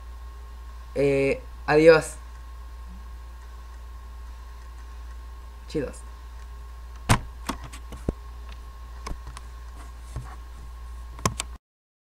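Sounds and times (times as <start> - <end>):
low electrical hum: 0.0 - 11.6
sharp clicks and knocks: 11.2 - 11.6.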